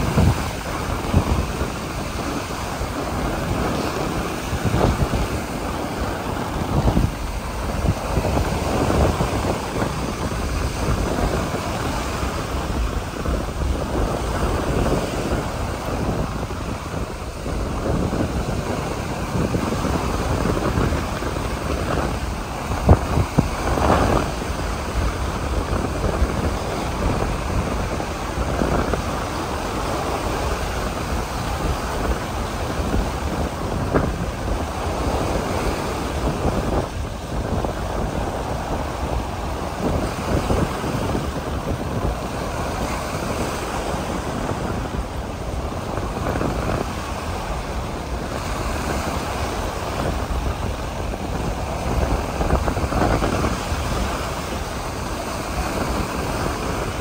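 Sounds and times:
ocean surf on beach: 0.0 - 57.0
wind rumbling on microphone: 0.0 - 57.0.

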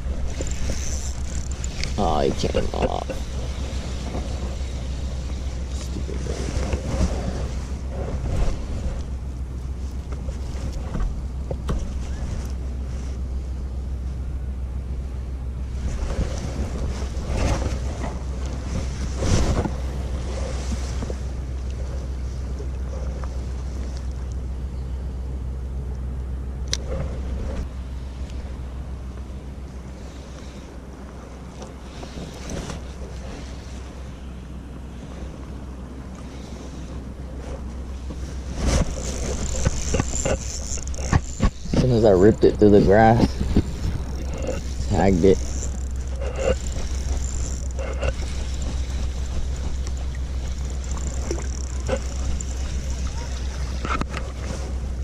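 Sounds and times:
wind rumbling on microphone: 0.0 - 25.0, 26.7 - 55.0
fishing reel ticking: 0.3 - 2.1, 38.9 - 53.9
thin high whine: 36.3 - 55.0
rain jacket rustling: 37.4 - 55.0
wind buffeting microphone: 38.2 - 55.0.

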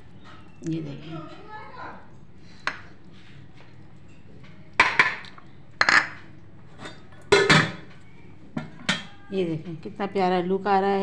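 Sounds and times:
metal spoon clinking on dishes: 6.8 - 7.9.

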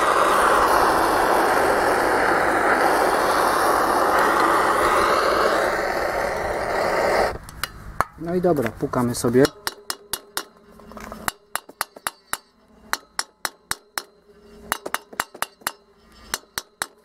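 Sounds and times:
blowtorch hissing: 0.0 - 7.5.

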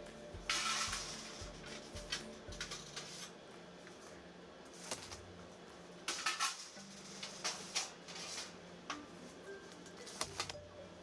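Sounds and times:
low steady hum: 0.0 - 11.0
metal baking pans clattering: 6.1 - 8.6.

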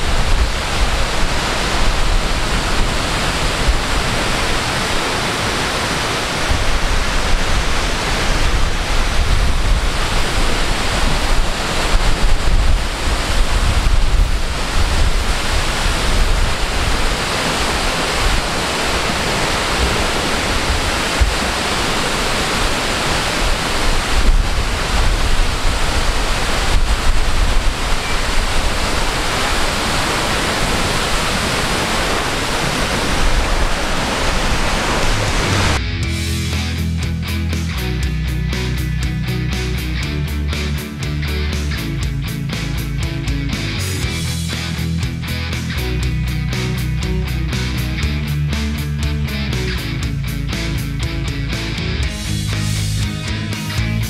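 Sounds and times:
wind buffeting microphone: 0.0 - 35.8
waterfall rushing: 0.0 - 36.8, 42.8 - 50.2.

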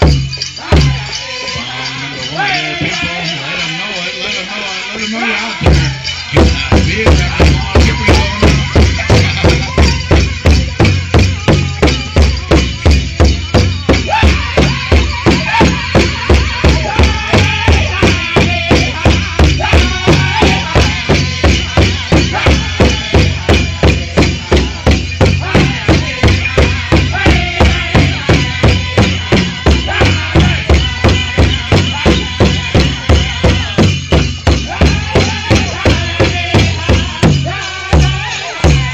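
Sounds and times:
high singing: 0.0 - 38.9
jingling: 0.0 - 38.9
large drum beating: 5.6 - 38.9.

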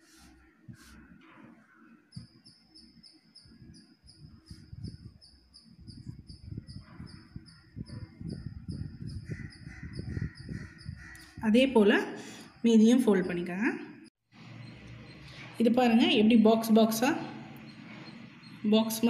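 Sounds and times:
cricket chirping: 2.1 - 9.8.

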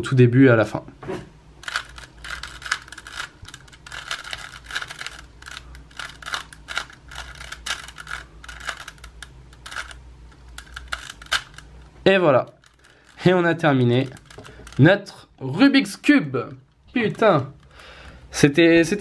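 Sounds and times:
puzzle cube plastic clicks: 1.6 - 13.3, 13.9 - 14.9.

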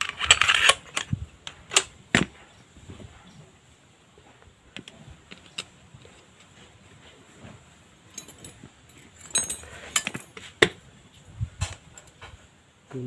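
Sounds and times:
sharp metallic clinks: 8.1 - 10.4.

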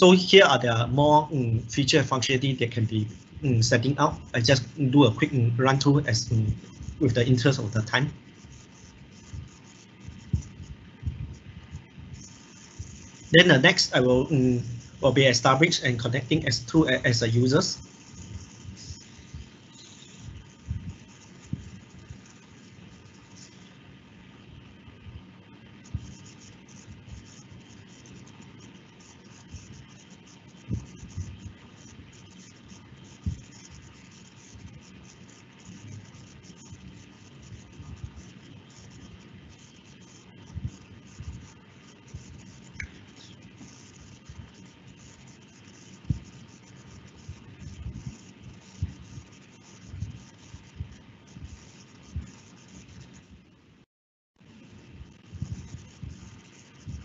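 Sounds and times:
microphone hiss: 0.0 - 57.0
light scratching: 1.7 - 23.9, 25.7 - 53.3, 55.1 - 57.0
soft low thumps: 9.3 - 12.2, 20.3 - 21.7, 55.3 - 56.2
dull low thumps: 10.2 - 11.8.

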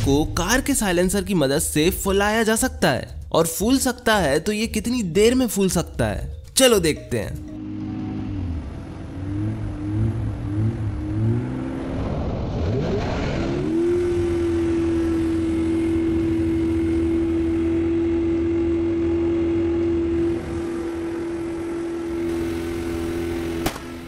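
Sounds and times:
car engine revving: 7.6 - 24.0.

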